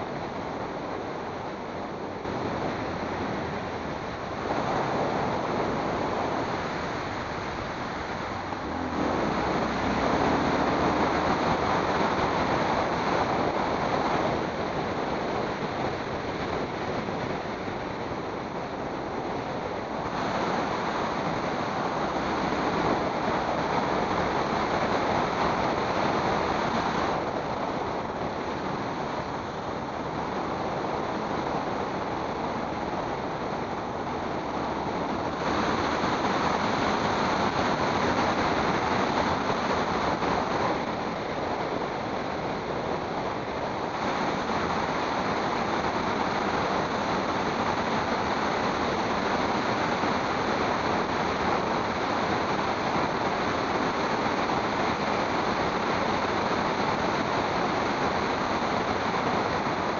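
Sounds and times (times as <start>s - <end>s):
road noise at speed: 0.0s - 59.9s
wind rush over microphone: 0.0s - 59.9s.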